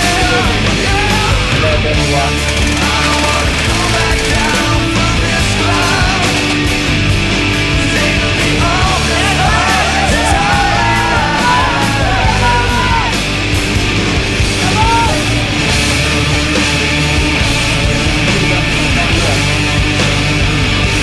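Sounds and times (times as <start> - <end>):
loud punk rock music: 0.0 - 21.0
shouted vocal: 8.1 - 13.3, 14.4 - 15.4.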